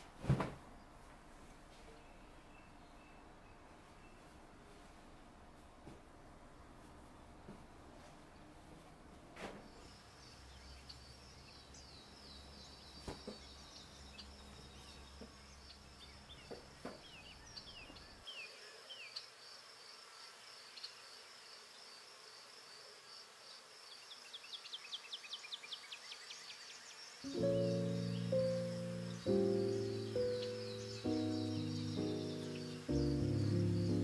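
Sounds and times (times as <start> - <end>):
insect trill: 26.5 - 34.0.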